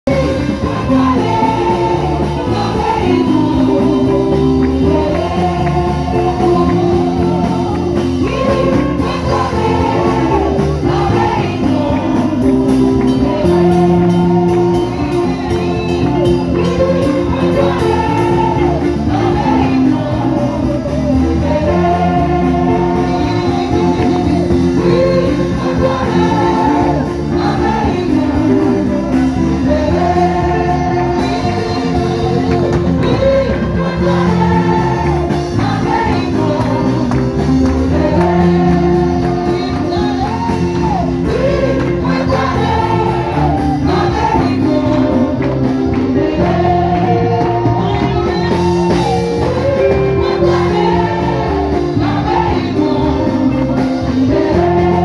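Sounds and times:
group of voices singing: 0:00.0 - 0:55.0
keyboard and bass notes: 0:00.0 - 0:55.0.

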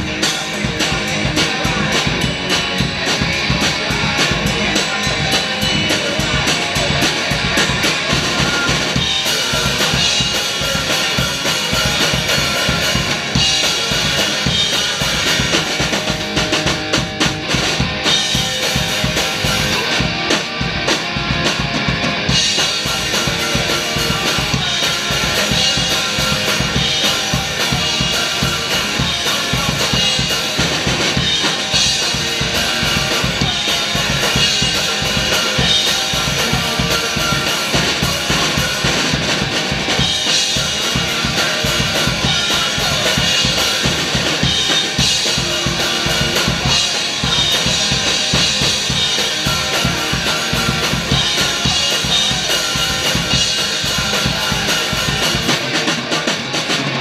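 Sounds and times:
rock drum kit beat: 0:00.0 - 0:57.0
strummed electric guitar: 0:00.0 - 0:57.0.

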